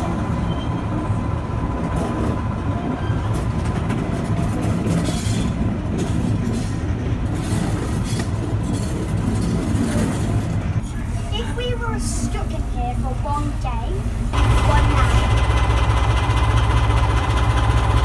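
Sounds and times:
rumble of wheels on rails: 0.0 - 18.0.

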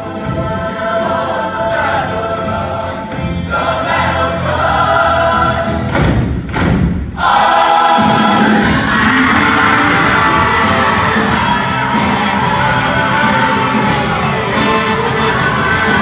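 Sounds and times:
live band playing: 8.0 - 16.0.

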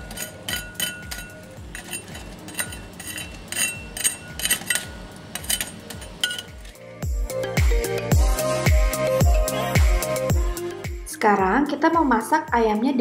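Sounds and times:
utensil clinking on mesh strainer: 0.0 - 6.8.

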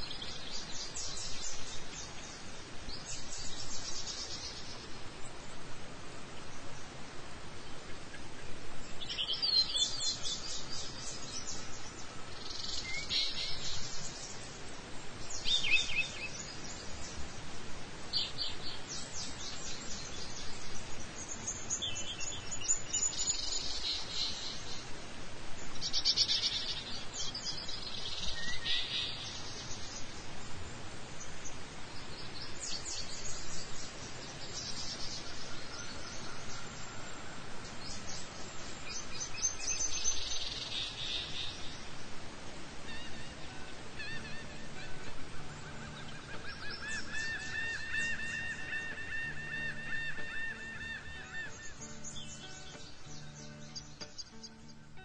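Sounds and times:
low background noise: 0.0 - 55.0
birds trilling: 42.8 - 55.0.

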